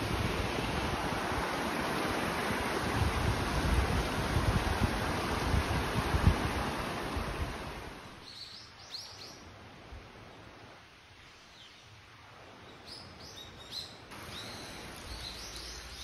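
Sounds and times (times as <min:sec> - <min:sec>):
wind gusts on microphone: 0:00.0 - 0:08.2
stream rushing over rocks: 0:00.0 - 0:08.4, 0:14.0 - 0:16.0
small birds chirping: 0:08.2 - 0:09.5, 0:11.2 - 0:16.0.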